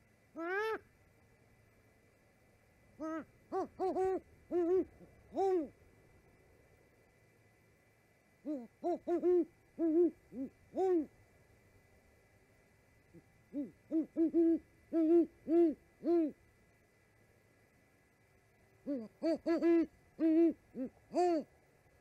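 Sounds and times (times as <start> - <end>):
owl hooting: 0.0 - 0.9, 3.0 - 5.8, 8.4 - 11.2, 13.1 - 16.4, 18.8 - 21.5.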